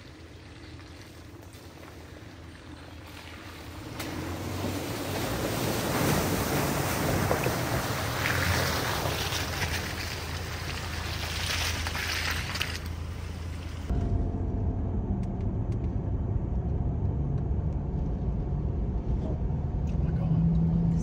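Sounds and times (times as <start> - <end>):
vehicle engine humming: 0.0 - 21.0.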